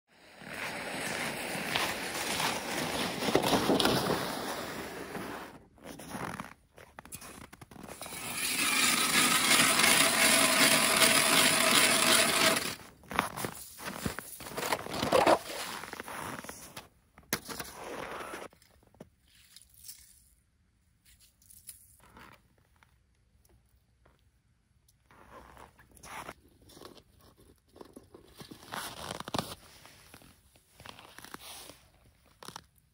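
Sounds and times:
ice auger scraping through ice: 0.2 - 6.0, 7.1 - 16.2.

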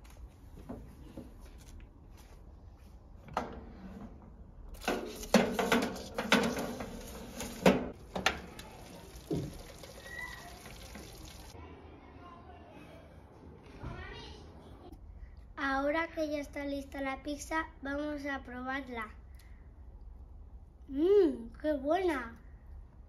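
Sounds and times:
metal clatter and knocks: 4.8 - 8.6.

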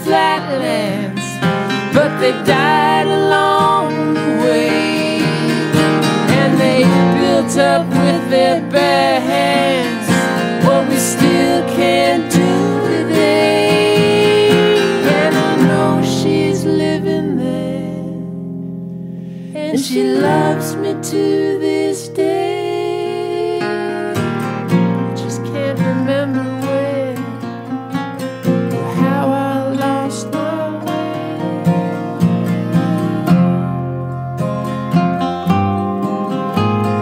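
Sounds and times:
lead acoustic guitar solo: 0.0 - 37.0
strummed rhythm guitar: 0.0 - 37.0.

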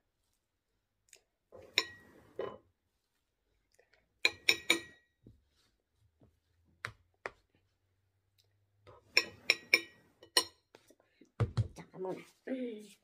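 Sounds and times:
spoon knocking against dishes: 4.2 - 5.2, 9.1 - 10.7.

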